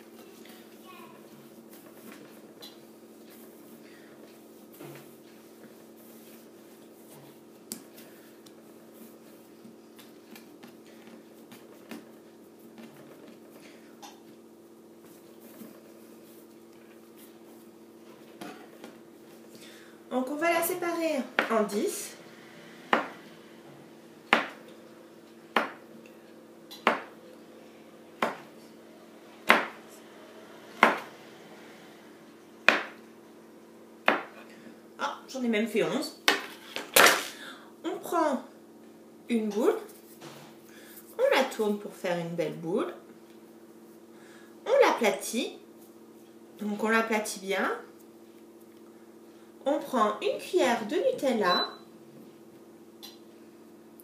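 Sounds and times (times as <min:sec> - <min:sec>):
faint steady hum: 0:00.0 - 0:54.0
hands rolling dough on countertop: 0:00.1 - 0:14.4, 0:15.0 - 0:19.5.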